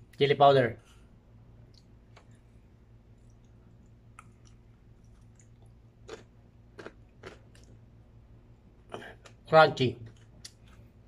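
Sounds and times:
person chewing crunchy food: 3.2s - 7.9s.

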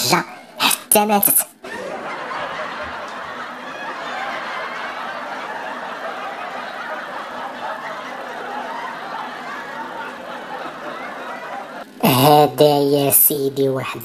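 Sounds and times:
audience laughter: 1.6s - 12.0s.

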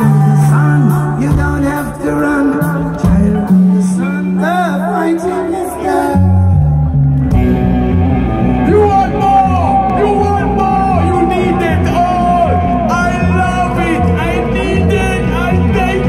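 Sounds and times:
person singing: 0.0s - 6.8s, 8.7s - 16.0s
live band music: 0.0s - 16.0s.

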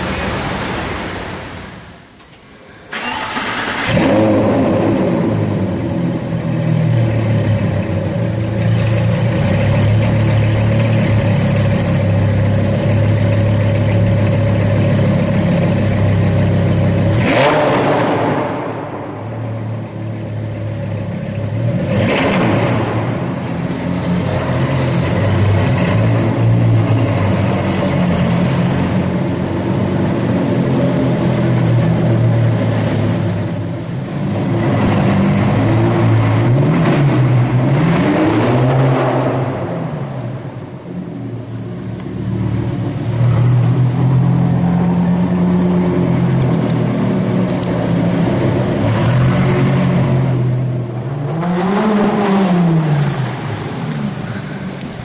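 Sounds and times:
car engine starting: 0.0s - 55.0s
car engine idling: 2.1s - 37.8s, 39.6s - 51.3s, 52.7s - 55.0s
engine revving bursts: 2.9s - 5.9s, 17.0s - 20.0s, 21.8s - 23.5s.

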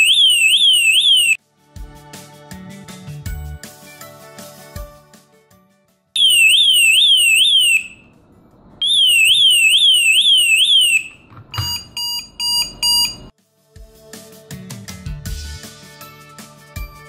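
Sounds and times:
lock siren warbling wail: 0.0s - 1.4s, 6.2s - 8.2s, 8.8s - 11.2s
short beeps: 11.6s - 13.3s.

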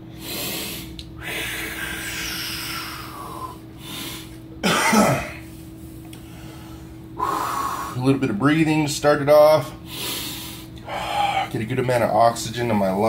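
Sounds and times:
person breathing deeply: 0.0s - 4.4s, 6.2s - 8.1s, 9.8s - 11.5s
low electrical hum: 0.0s - 13.0s
person coughing: 4.6s - 5.5s.

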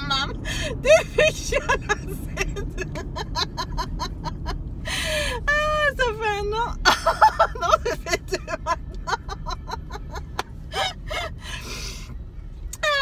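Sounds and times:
low car hum: 0.0s - 13.0s
woman laughing hard: 0.7s - 5.6s, 6.8s - 11.4s.

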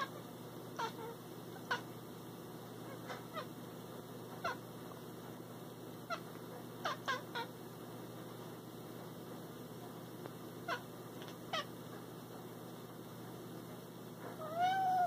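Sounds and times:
cat chirping: 14.4s - 15.0s.

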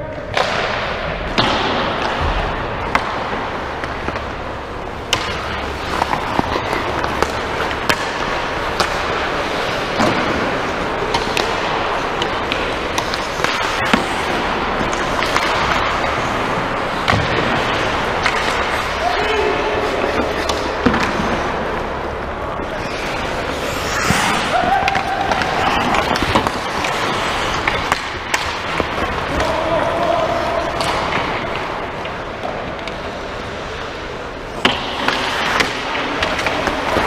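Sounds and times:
hockey sticks clacking on puck: 0.0s - 21.5s, 22.6s - 37.0s
skates scraping ice: 0.4s - 37.0s
puck knocking off boards: 5.0s - 19.0s, 23.1s - 29.5s.

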